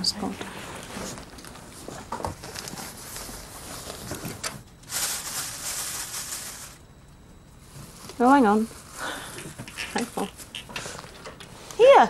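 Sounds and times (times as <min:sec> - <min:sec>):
rustling: 0:00.8 - 0:06.8.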